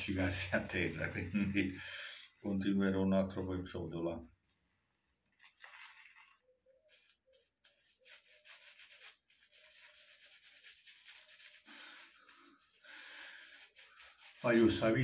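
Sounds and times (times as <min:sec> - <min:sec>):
shaving brush scratching: 0:05.4 - 0:12.8, 0:13.4 - 0:15.0.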